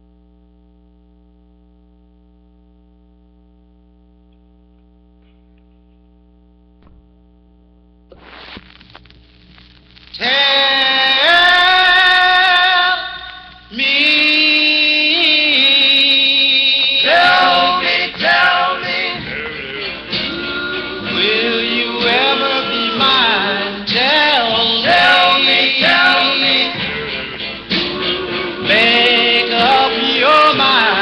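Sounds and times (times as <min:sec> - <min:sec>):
vocal group singing in harmony: 0:10.2 - 0:31.0.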